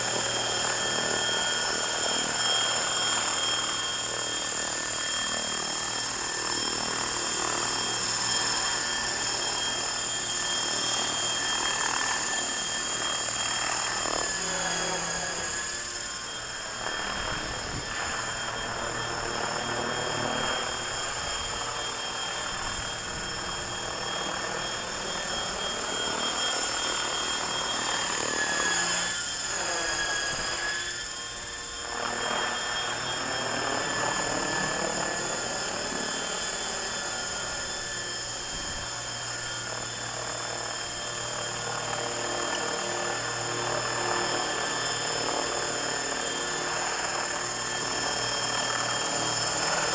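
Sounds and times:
rc helicopter motor whine: 0:00.0 - 0:49.9.

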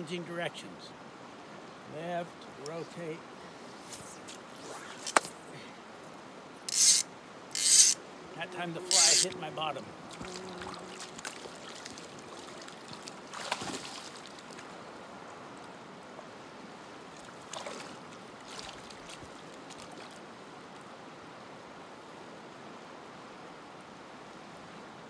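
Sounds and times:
river current rushing: 0:00.0 - 0:21.6
fly line splashing on water: 0:03.8 - 0:05.4, 0:10.1 - 0:14.7, 0:17.2 - 0:20.2.

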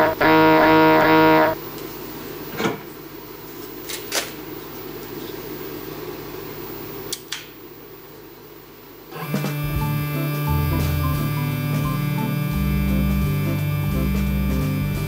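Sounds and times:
machine low hum: 0:00.0 - 0:02.3, 0:09.0 - 0:15.0
music cue: 0:09.4 - 0:15.0.

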